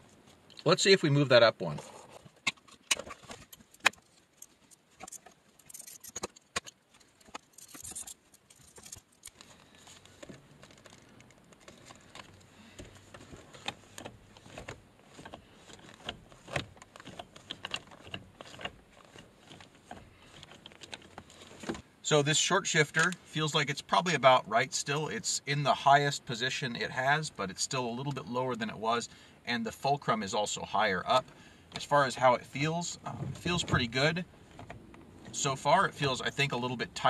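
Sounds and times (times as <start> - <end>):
plastic trim clicking and rattling: 2.4 - 21.8.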